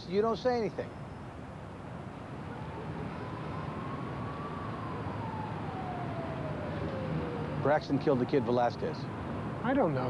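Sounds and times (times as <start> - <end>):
low urban rumble: 0.0 - 10.0
distant siren wail: 2.2 - 9.6.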